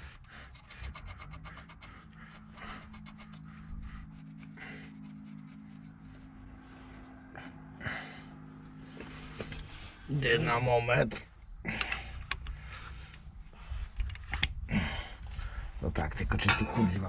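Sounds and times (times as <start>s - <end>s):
ratchet wrench clicking: 0.0s - 3.7s
metal parts scraping and handled: 0.0s - 6.6s
steady low hum: 0.0s - 17.0s.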